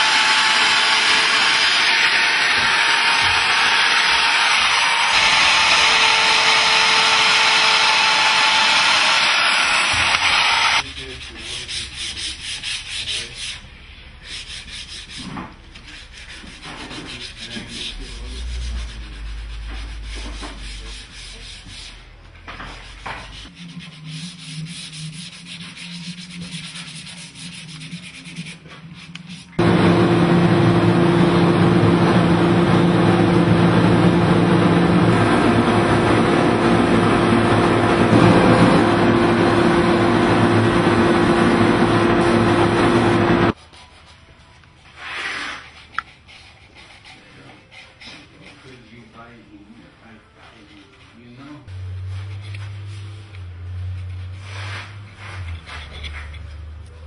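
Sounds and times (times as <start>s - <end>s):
wood router cutting: 0.0s - 10.8s, 29.6s - 43.6s
steady hum: 29.5s - 43.6s.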